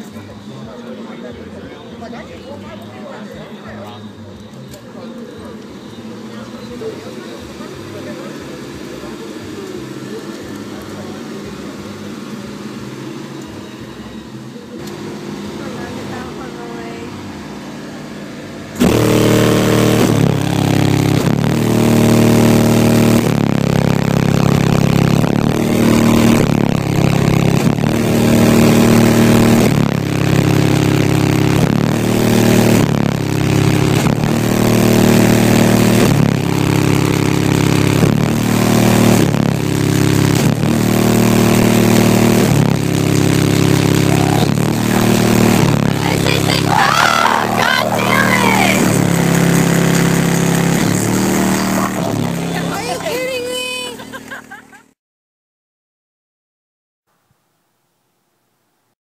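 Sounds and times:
bass-heavy music from car speakers: 0.0 - 53.9.

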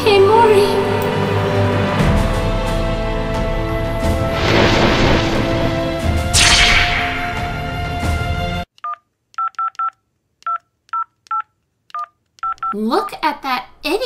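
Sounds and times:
background music: 0.0 - 8.7
phone keypad beeps: 8.8 - 12.8.

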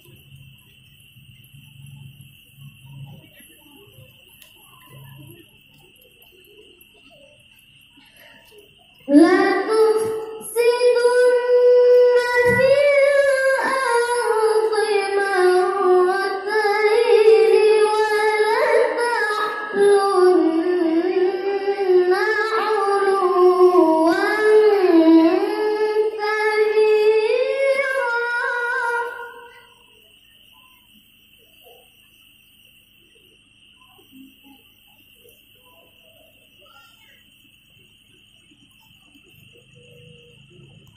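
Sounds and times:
child reciting melodically over loudspeakers: 2.6 - 29.9, 35.8 - 37.3.

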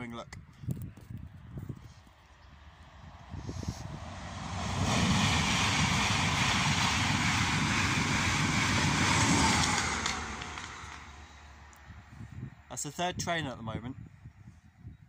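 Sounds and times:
passenger train rushing past: 2.9 - 11.7.

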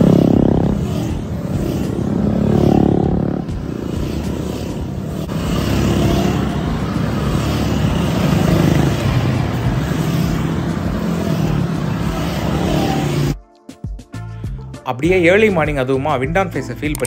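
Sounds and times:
motorcycles passing by: 0.0 - 13.4.

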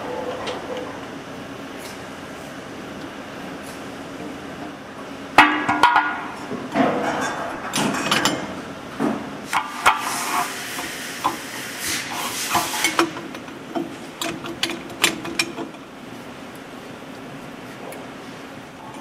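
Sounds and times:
metal clicks and knocks: 12.9 - 15.9.

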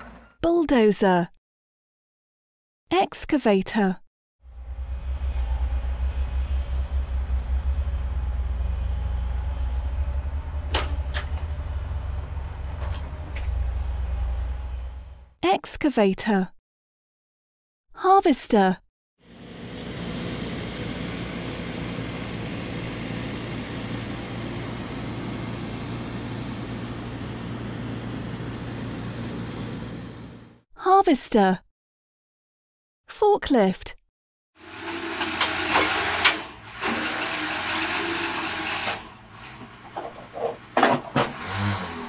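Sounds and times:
excavator diesel engine rumbling: 4.5 - 15.3, 34.7 - 42.0.

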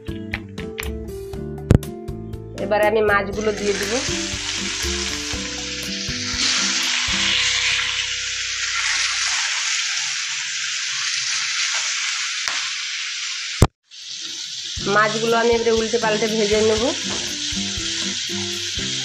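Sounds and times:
background music with held notes: 0.0 - 9.0, 14.8 - 19.0
fish sizzling in hot oil: 3.4 - 19.0.

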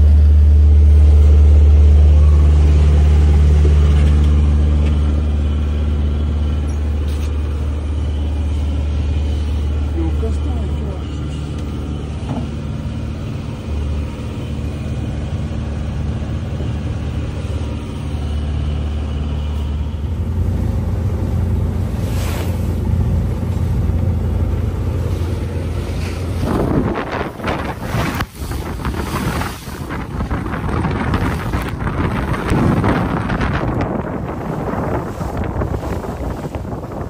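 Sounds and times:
boat engine droning: 0.0 - 37.0
wind and water noise: 0.0 - 37.0.

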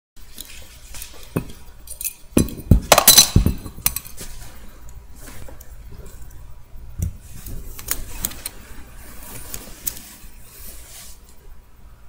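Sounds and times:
clinks and knocks: 1.2 - 4.2.

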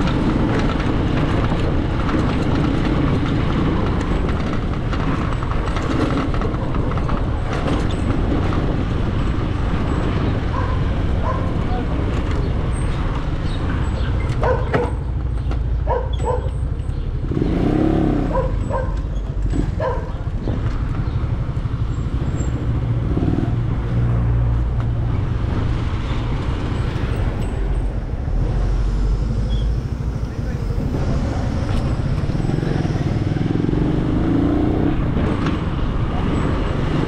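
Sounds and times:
traffic: 0.0 - 37.0
vehicle engine rumbling: 0.0 - 37.0.

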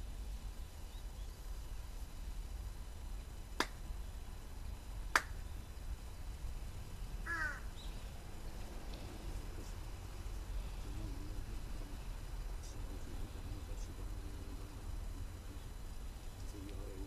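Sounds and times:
sharp handclaps: 3.6 - 3.8, 5.1 - 5.4
bird short falling call: 7.3 - 7.7.

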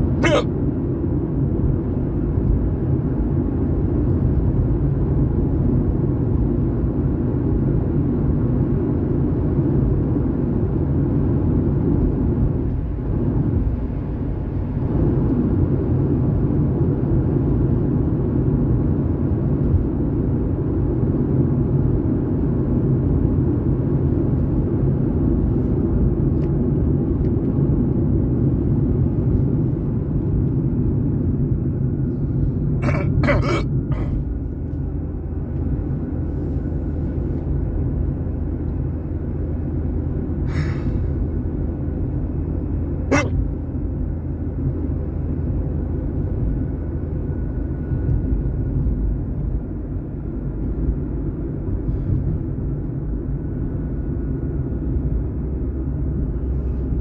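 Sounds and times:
car interior road and engine noise: 0.0 - 57.0.

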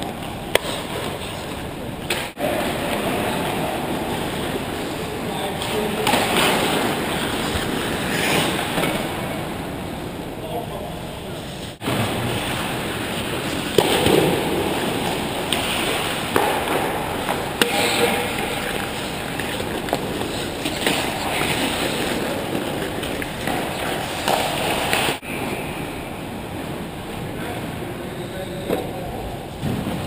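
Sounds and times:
hockey sticks and puck clacking: 0.0 - 9.5, 13.0 - 25.6
skates scraping ice: 0.0 - 9.6, 11.4 - 25.6.

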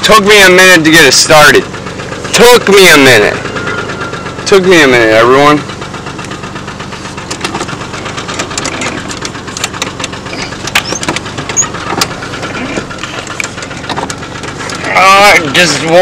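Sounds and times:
engine knocking: 0.0 - 16.0
truck engine droning: 0.0 - 16.0.

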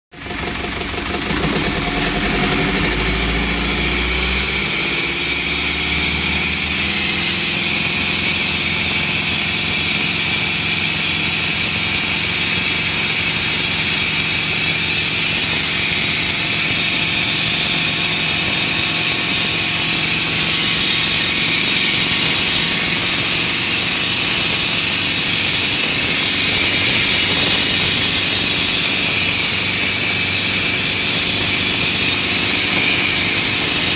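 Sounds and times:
boat diesel engine running: 0.2 - 33.9.

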